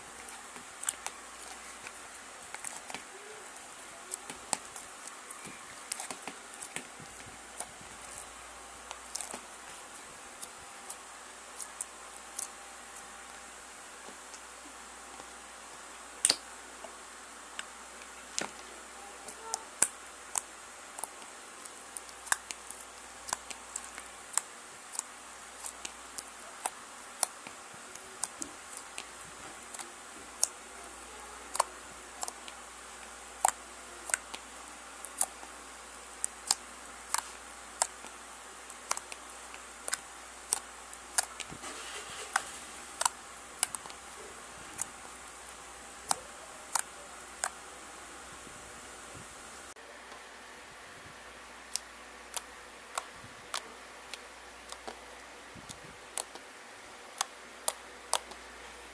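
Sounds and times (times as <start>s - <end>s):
slime clicking and popping: 16.2s - 16.4s, 56.1s - 56.4s.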